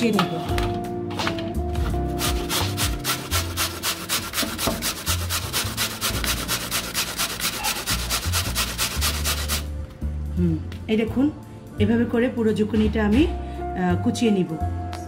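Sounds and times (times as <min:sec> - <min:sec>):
zucchini rasping on a grater: 0:02.2 - 0:09.7.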